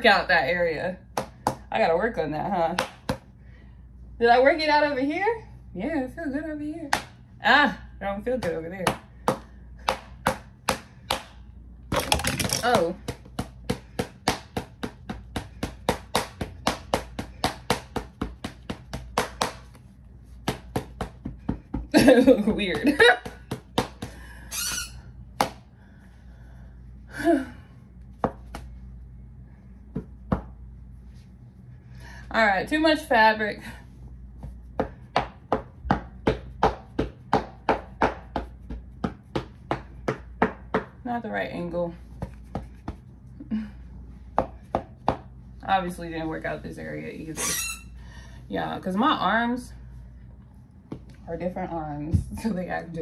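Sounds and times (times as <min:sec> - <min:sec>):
hands slapping body: 0:02.7 - 0:03.3, 0:06.9 - 0:07.2, 0:08.4 - 0:19.8, 0:20.4 - 0:21.9, 0:22.8 - 0:24.2, 0:28.2 - 0:28.7.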